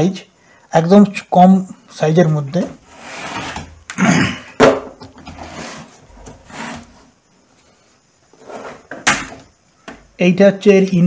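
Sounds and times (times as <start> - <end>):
wooden box scraping on table: 2.8 - 3.8, 5.1 - 7.2, 8.3 - 9.0.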